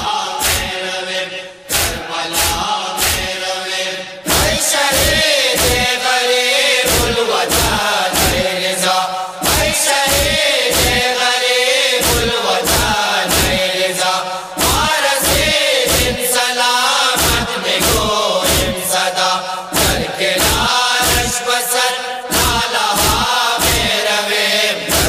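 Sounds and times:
voices chanting a lament: 0:00.0 - 0:25.0
sharp beats keeping time: 0:01.7 - 0:03.4, 0:04.3 - 0:06.1, 0:06.9 - 0:08.7, 0:09.4 - 0:11.2, 0:12.0 - 0:16.2, 0:17.2 - 0:18.9, 0:19.6 - 0:21.4, 0:22.3 - 0:24.0.

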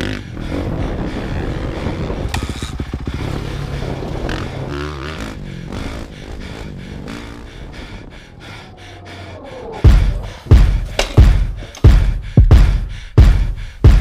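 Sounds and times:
dirt bike engine revving: 0:00.0 - 0:08.1.

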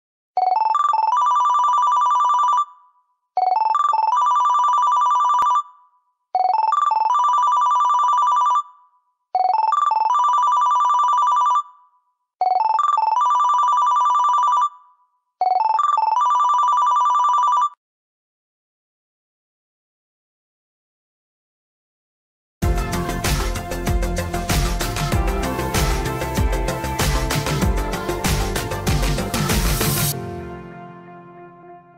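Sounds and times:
digital phone ringtone: 0:00.4 - 0:17.8.

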